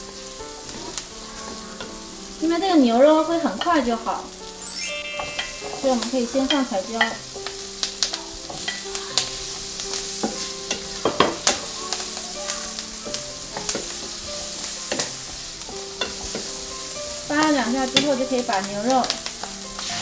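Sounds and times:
vegetables sizzling in a pan: 0.0s - 20.0s
spatula clacking and scraping pan: 0.6s - 2.2s, 5.8s - 20.0s.

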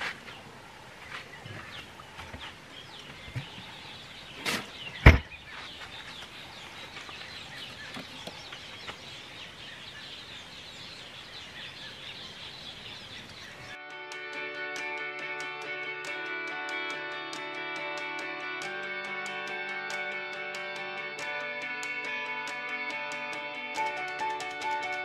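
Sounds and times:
birds chirping: 0.0s - 14.4s
knocks on wooden box: 5.0s - 5.3s
guitar music: 13.8s - 25.0s.

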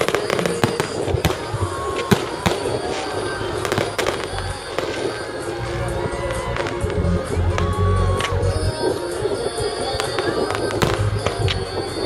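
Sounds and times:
fireworks bursting with sharp bangs: 0.0s - 12.0s
fireworks crackling: 0.0s - 12.0s.

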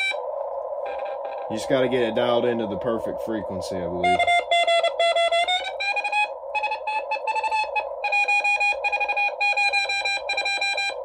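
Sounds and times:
receiver hiss: 0.0s - 11.0s
morse code beeps: 4.0s - 11.0s.

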